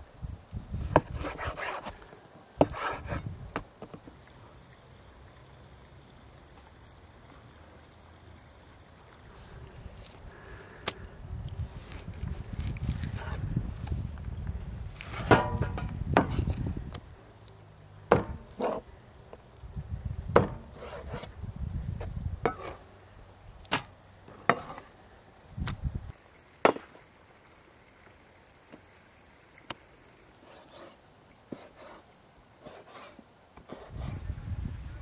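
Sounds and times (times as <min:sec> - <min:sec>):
cleaver chopping on wooden board: 0:18.1 - 0:18.8, 0:20.4 - 0:20.7.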